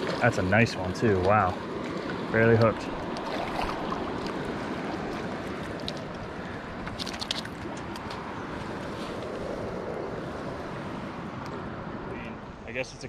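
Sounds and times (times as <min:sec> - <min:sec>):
river water rushing: 0:00.0 - 0:12.6
wind: 0:00.0 - 0:13.0.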